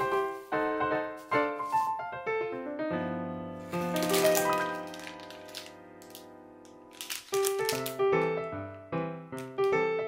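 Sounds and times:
plastic bag crinkling: 3.6 - 8.3.

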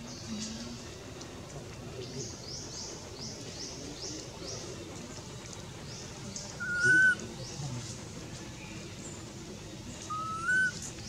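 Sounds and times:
baby monkey whistle-like coo: 6.6 - 7.2, 10.1 - 10.8.

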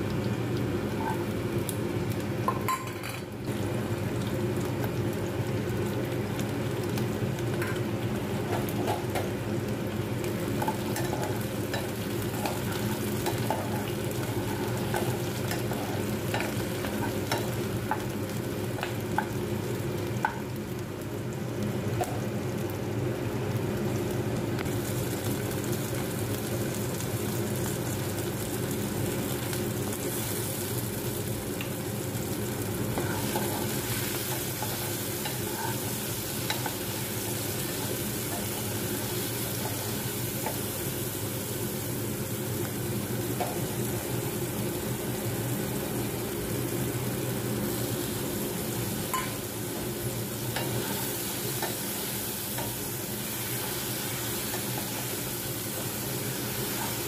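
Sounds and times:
vegetables sizzling in oil: 0.0 - 57.0.

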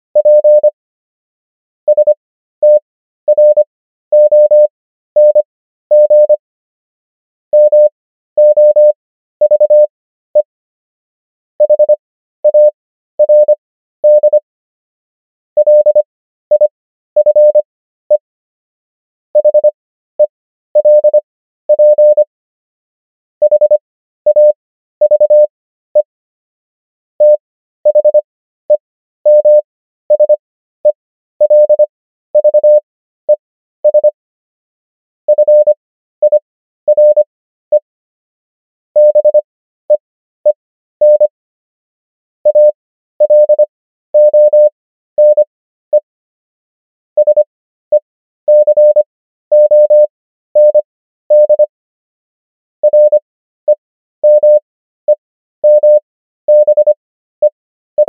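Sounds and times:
morse code beeps: 0.2 - 0.8, 1.9 - 6.4, 7.6 - 10.5, 11.6 - 14.4, 15.6 - 17.6, 19.4 - 19.8, 20.8 - 22.3, 23.4 - 26.1, 27.2 - 28.2, 29.3 - 31.8, 32.4 - 34.2, 35.3 - 37.8, 39.0 - 39.4, 41.0 - 41.3, 42.5 - 43.6, 44.2 - 46.1, 47.2 - 51.7, 52.8 - 54.6, 55.6 - 57.0.

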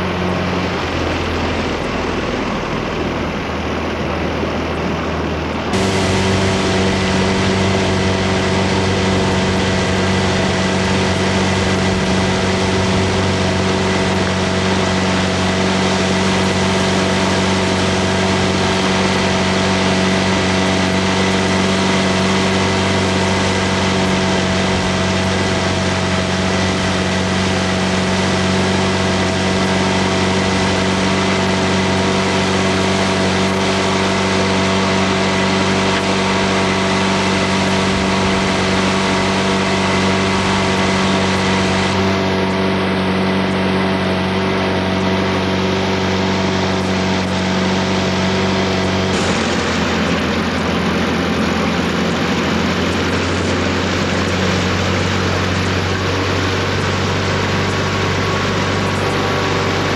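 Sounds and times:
motorboat engine running: 0.0 - 59.9.

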